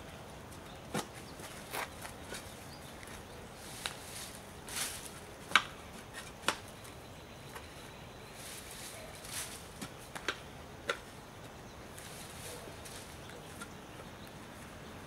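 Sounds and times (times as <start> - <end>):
hand tool scraping in soil: 8.3 - 10.0, 11.9 - 13.7.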